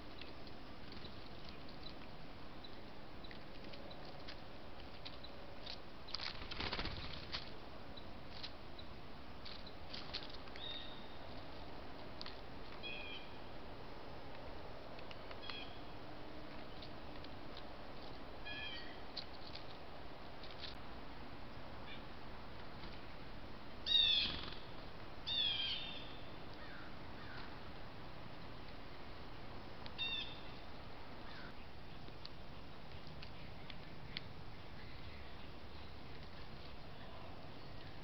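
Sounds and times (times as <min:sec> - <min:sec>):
bird wings fluttering: 0:06.1 - 0:07.6, 0:24.2 - 0:24.9.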